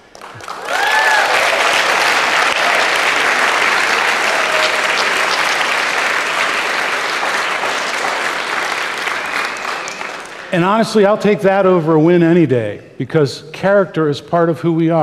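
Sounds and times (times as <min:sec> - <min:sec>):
audience applauding: 0:00.0 - 0:10.7
person whooping: 0:00.4 - 0:01.6, 0:04.0 - 0:05.6.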